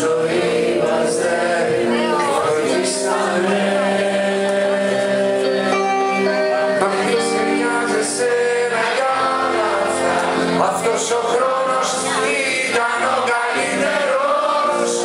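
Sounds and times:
live band playing: 0.0 - 15.0.

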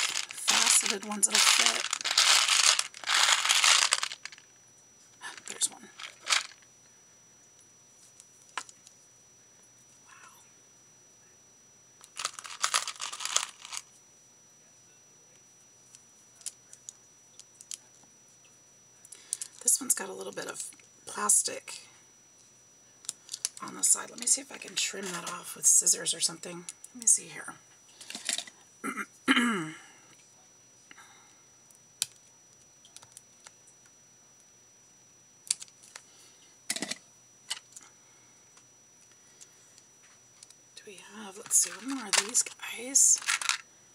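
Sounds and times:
plastic beads clicking: 0.0 - 4.4, 6.0 - 6.6, 12.1 - 13.8, 43.2 - 43.6.

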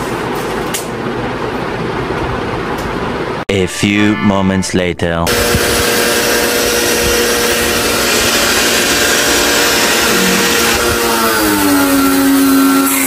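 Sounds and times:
electric motor running: 5.3 - 13.0.

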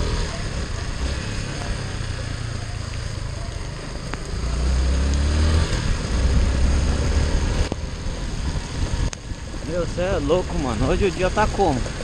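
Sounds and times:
motorcycle engine accelerating: 0.0 - 12.0
rain hiss on wet road: 0.0 - 12.0
wind rumble on microphone: 5.5 - 12.0.

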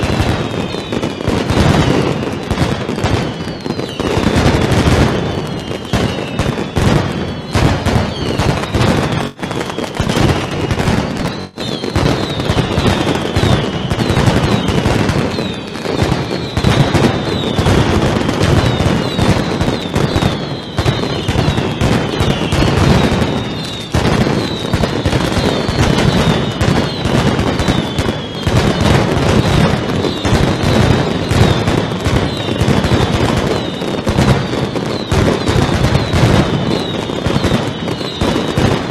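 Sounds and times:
firecracker barrage: 0.0 - 38.9
falling high whistles: 5.3 - 17.8.

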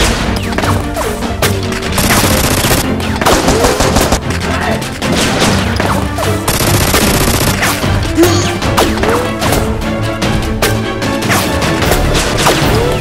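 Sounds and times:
music playing: 0.0 - 13.0
automatic gunfire bursts: 2.0 - 4.2, 6.5 - 7.6.

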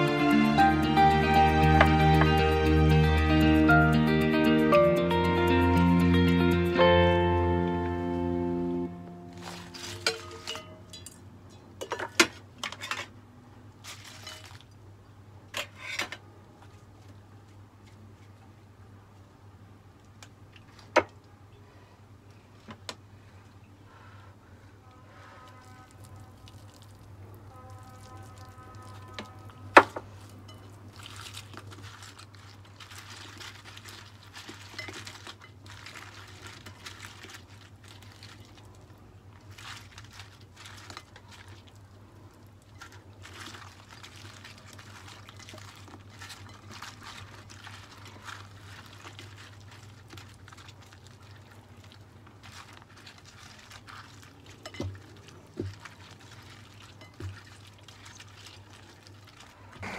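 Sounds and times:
rustling and squelching food: 0.0 - 4.2, 5.1 - 59.9.

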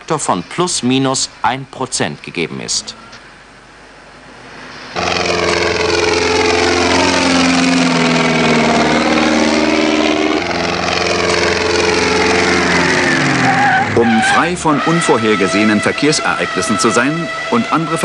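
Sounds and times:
vehicle engines running: 0.0 - 18.0
high engine whine: 2.2 - 18.0.

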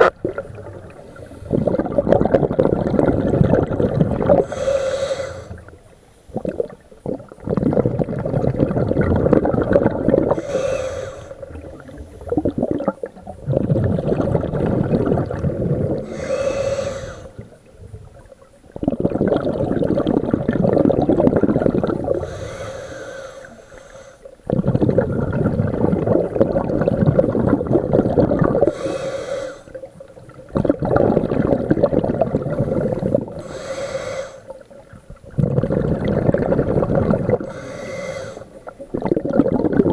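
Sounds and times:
exhaled bubbles rushing: 0.0 - 4.8, 5.4 - 22.6, 24.4 - 29.0, 29.7 - 39.9
regulator inhalation hiss: 4.3 - 6.3, 10.0 - 12.7, 15.8 - 18.0, 22.0 - 24.5, 28.6 - 30.1, 32.5 - 34.7, 37.3 - 38.8.

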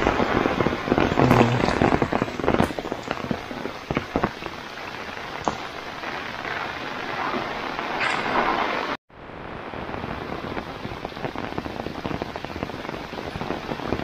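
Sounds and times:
heavy rain falling: 0.0 - 14.0
close raindrop taps: 1.0 - 4.6, 5.3 - 5.8.

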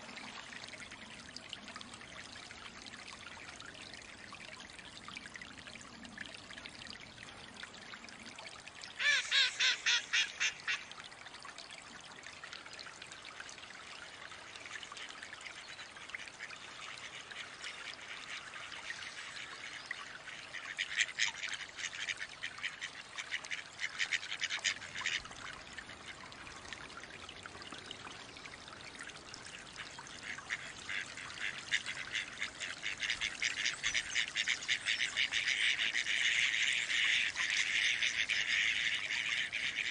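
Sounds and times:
water trickling: 0.0 - 39.9.

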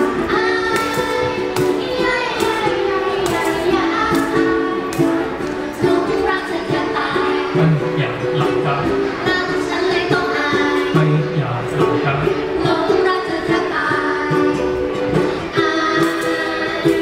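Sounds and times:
ukuleles strumming chords: 0.0 - 17.0
woman singing: 5.8 - 7.6, 9.2 - 10.9, 12.5 - 14.7, 15.5 - 17.0
man's low voice: 7.5 - 9.0, 10.9 - 12.4.

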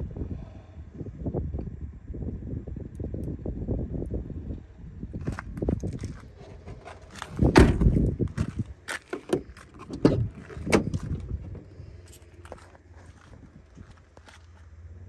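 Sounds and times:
car door shutting thud: 7.2 - 11.7.

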